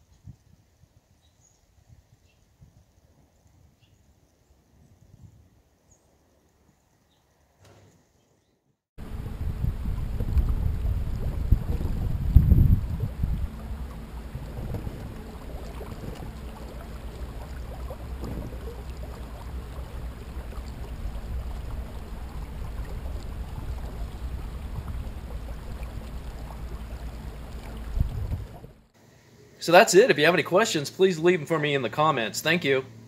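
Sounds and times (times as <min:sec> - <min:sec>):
wind rumble on microphone: 0:00.0 - 0:03.8, 0:04.8 - 0:05.6, 0:09.0 - 0:28.9
water washing along a hull: 0:09.0 - 0:28.9.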